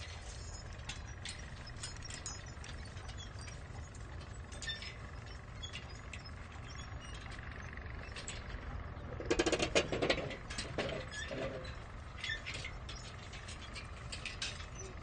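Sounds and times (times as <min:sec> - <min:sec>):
scattered ticks: 0:00.0 - 0:10.7
metal tools clinking and rattling: 0:00.0 - 0:15.0
short squeaks: 0:00.0 - 0:15.0
steady low rumble: 0:00.0 - 0:15.0.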